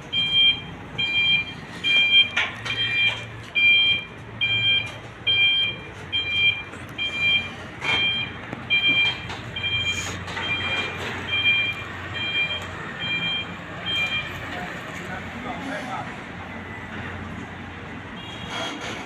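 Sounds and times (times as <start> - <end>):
two-tone reversing alarm beeping: 0.1 - 14.5.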